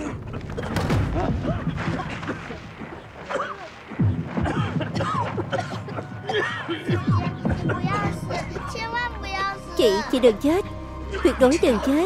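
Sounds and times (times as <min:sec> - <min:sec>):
people talking: 0:06.9 - 0:12.0.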